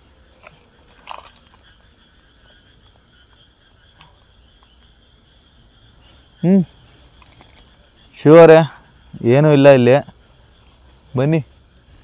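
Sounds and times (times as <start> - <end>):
soft crackles: 0.0 - 5.0, 6.0 - 7.9
high-pitched chirring of night animals: 0.0 - 12.0.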